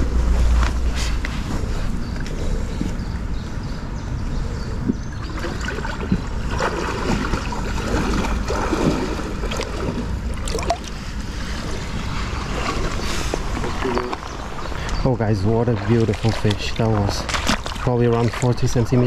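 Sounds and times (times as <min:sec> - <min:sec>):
wind rumbling on microphone: 0:00.0 - 0:19.0
water splashes: 0:05.2 - 0:14.6, 0:15.6 - 0:19.0
river water rippling over stones: 0:05.2 - 0:19.0.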